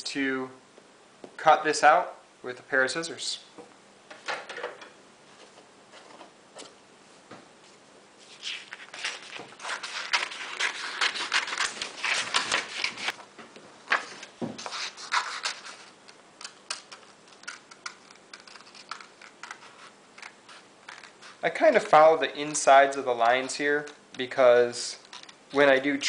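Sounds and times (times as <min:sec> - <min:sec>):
paper rustling: 0:08.2 - 0:13.2, 0:13.9 - 0:24.0
scissors snipping paper: 0:08.6 - 0:13.2.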